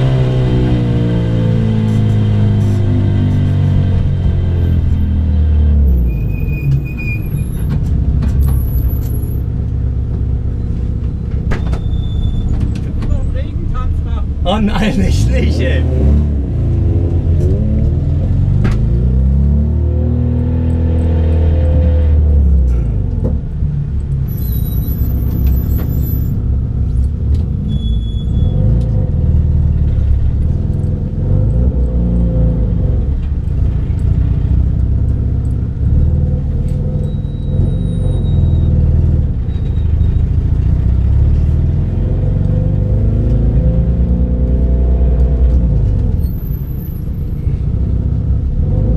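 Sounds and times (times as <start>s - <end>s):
car engine from inside cabin: 0.0s - 6.0s, 12.8s - 39.5s, 40.3s - 46.2s
road rumble: 0.0s - 48.9s.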